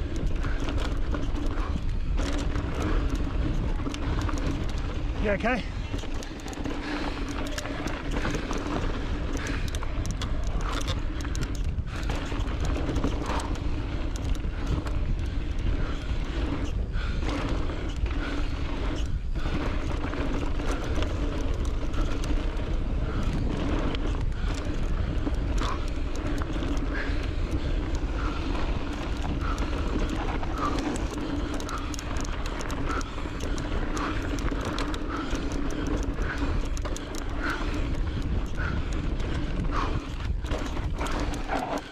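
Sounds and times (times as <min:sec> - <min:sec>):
bike clicks and rattles: 0:00.0 - 0:41.9
wind rush: 0:08.1 - 0:41.9.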